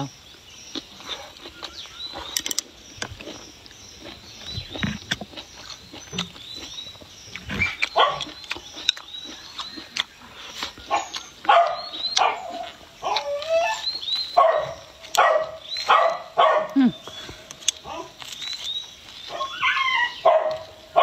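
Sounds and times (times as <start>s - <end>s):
close-up chewing: 0.3s - 21.0s
animal yelping and whining: 10.9s - 14.7s, 19.3s - 20.6s.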